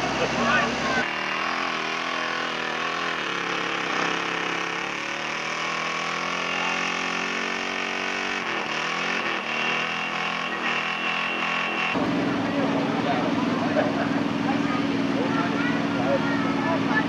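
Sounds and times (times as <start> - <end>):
truck engine running under load: 11.6 - 17.0.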